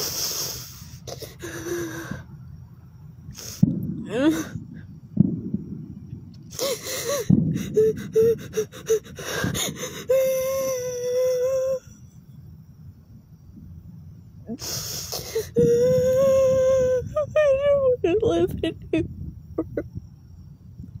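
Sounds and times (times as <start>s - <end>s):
woman gasping breaths: 6.5s - 10.2s
woman wailing sobs: 6.6s - 11.8s.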